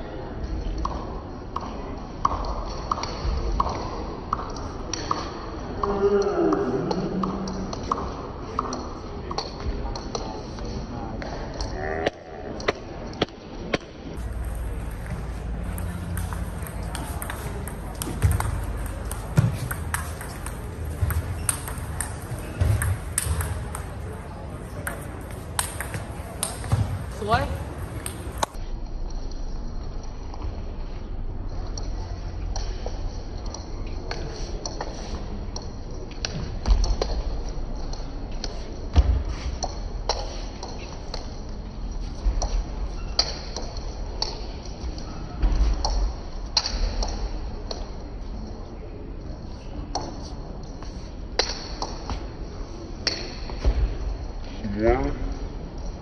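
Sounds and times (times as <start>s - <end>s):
ping pong ball clicking: 11.2s - 28.6s.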